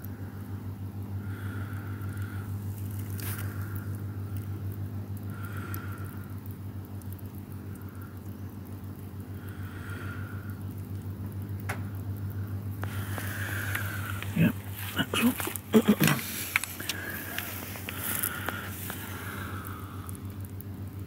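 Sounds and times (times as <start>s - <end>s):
faint scattered ticks: 0.0s - 21.0s
steady low hum: 0.0s - 21.0s
soft hissy swells: 7.6s - 21.0s.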